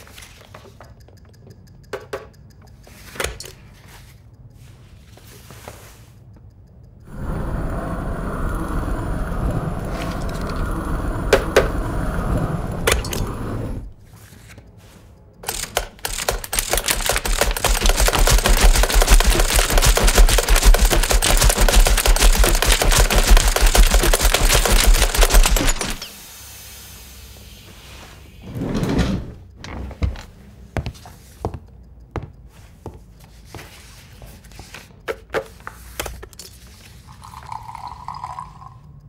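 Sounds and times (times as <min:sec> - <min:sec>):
stapler clicks: 0:15.4 - 0:26.1.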